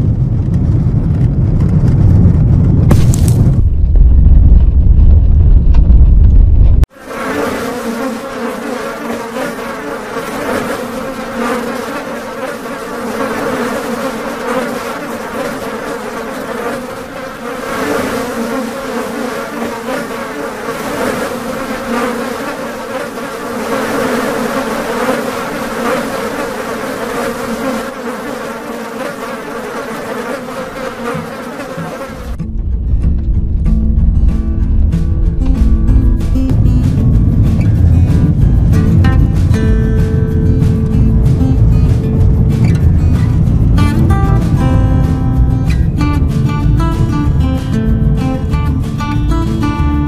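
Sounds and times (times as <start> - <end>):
flying insects buzzing: 6.9 - 32.4, 36.2 - 50.0.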